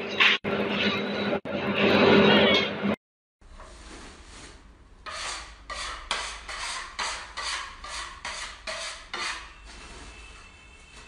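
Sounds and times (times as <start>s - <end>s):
hand scraper rasping across floor: 4.4s - 10.0s.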